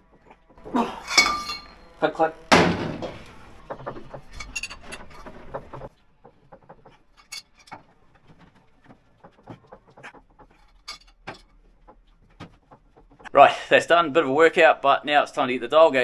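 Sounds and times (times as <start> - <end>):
noisy background: 0.5 - 6.2
tools and bolts clinking on metal: 0.7 - 3.6, 4.2 - 5.8, 7.2 - 7.8, 10.5 - 11.5.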